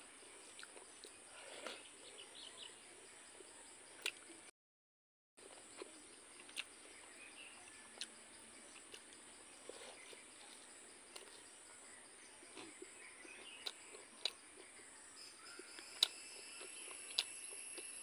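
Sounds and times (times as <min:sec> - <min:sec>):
chewing: 0:00.4 - 0:01.9, 0:05.4 - 0:06.7, 0:08.7 - 0:11.5, 0:12.4 - 0:18.0
insects droning: 0:05.4 - 0:18.0.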